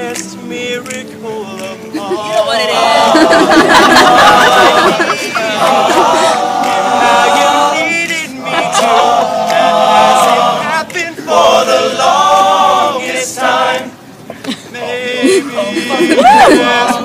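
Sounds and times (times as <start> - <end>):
a cappella group singing: 0.0 - 17.0.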